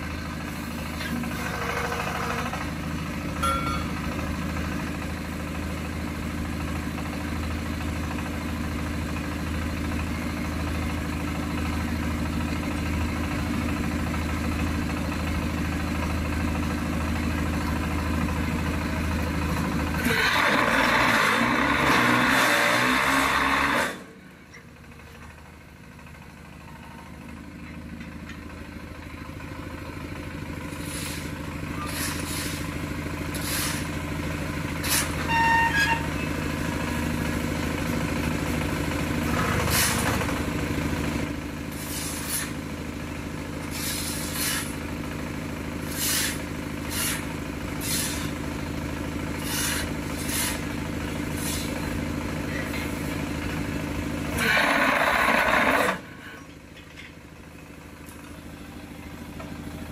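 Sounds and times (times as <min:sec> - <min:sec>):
diesel engine running: 0:00.0 - 0:59.9
metallic clang: 0:03.4 - 0:04.1
shovels scraping concrete mix: 0:30.8 - 0:32.7, 0:33.4 - 0:33.9, 0:41.8 - 0:42.6, 0:43.7 - 0:44.7, 0:45.9 - 0:47.2, 0:47.8 - 0:48.3, 0:49.4 - 0:50.7, 0:51.4 - 0:51.8.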